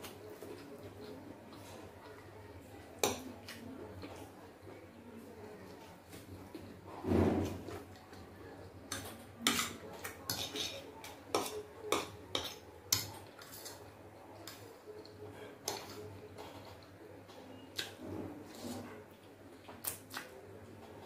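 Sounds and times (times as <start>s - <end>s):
fork scraping ceramic plate: 9.4s - 13.8s, 17.8s - 18.9s.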